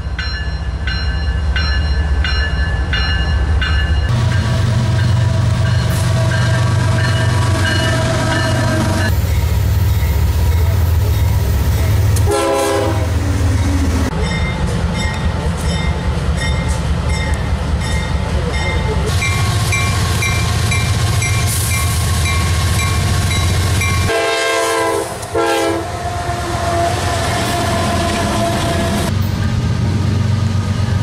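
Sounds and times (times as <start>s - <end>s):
locomotive engine rumble: 0.8s - 31.0s
train horn: 12.2s - 13.2s, 24.0s - 29.1s.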